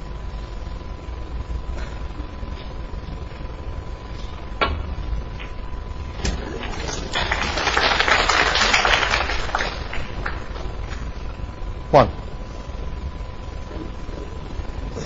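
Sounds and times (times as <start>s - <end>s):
audience applauding: 6.4s - 10.9s.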